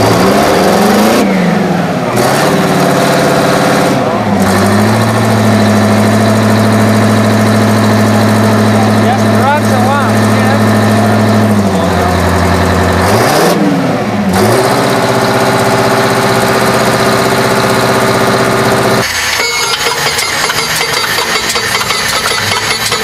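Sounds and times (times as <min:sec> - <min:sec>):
tractor diesel engine running: 0:00.0 - 0:23.0
radial engine ticking clatter: 0:04.4 - 0:13.0, 0:15.2 - 0:23.0.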